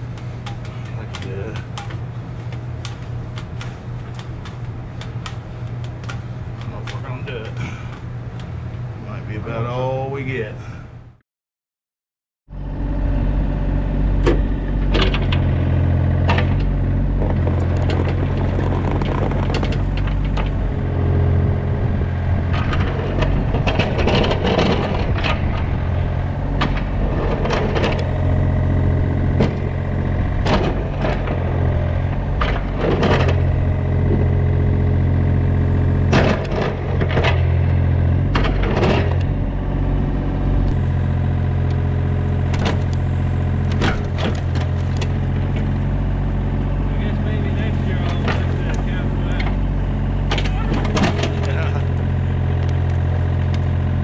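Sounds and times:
excavator engine running: 0:00.0 - 0:10.6, 0:12.5 - 0:54.0
bucket cracking and scraping soil: 0:17.2 - 0:20.4.

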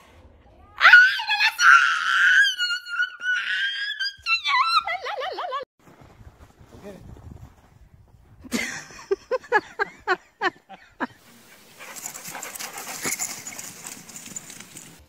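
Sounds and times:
steady rushing hiss: 0:11.2 - 0:15.0.

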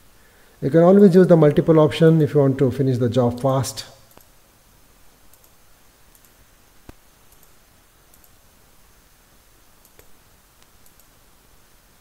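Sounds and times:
faint hiss: 0:00.0 - 0:12.0
computer mouse clicks: 0:04.1 - 0:04.3, 0:05.2 - 0:08.4, 0:09.8 - 0:11.2.

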